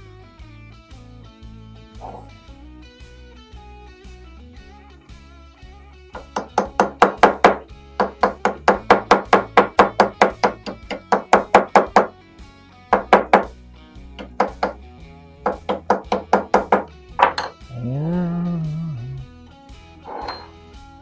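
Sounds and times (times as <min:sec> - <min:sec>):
hammer tapping metal punch: 0:14.2 - 0:14.8.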